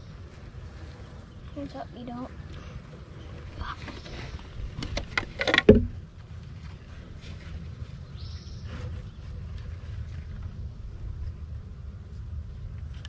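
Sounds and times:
loud thump: 5.6s - 6.0s.

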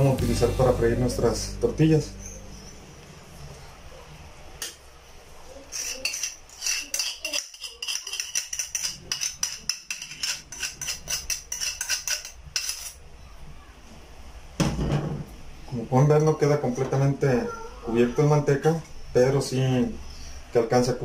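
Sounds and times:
utensil scraping and tapping a bowl: 5.7s - 13.0s.

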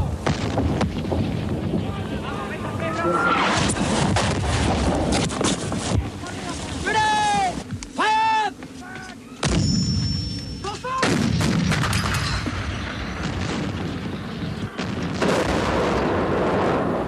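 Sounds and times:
loud explosion blast: 0.1s - 1.9s, 3.4s - 5.2s, 11.0s - 17.0s.

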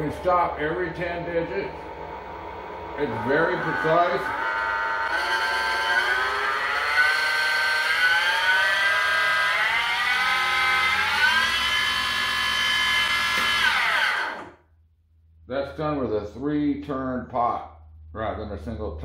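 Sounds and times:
motor spindle whine: 0.0s - 14.6s.

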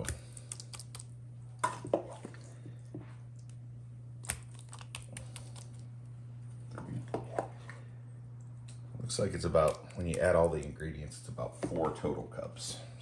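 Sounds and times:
mashed food squishing: 0.0s - 7.4s, 8.5s - 10.7s
steady low hum: 0.0s - 13.0s.

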